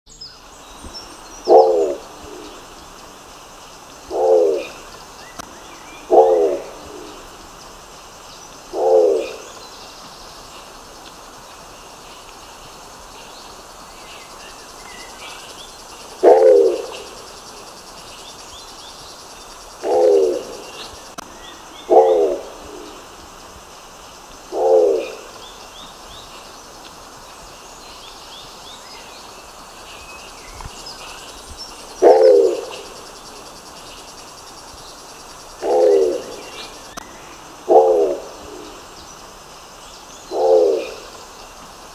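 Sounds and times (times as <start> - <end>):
pigeon low calls: 1.5 - 2.3, 6.0 - 7.2, 16.2 - 17.2, 19.8 - 20.7, 21.9 - 22.7, 32.0 - 32.9, 35.6 - 36.5.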